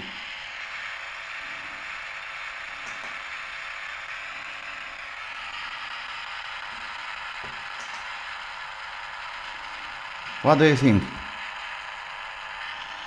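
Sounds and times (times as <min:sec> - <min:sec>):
radio static hiss: 0:09.9 - 0:11.6.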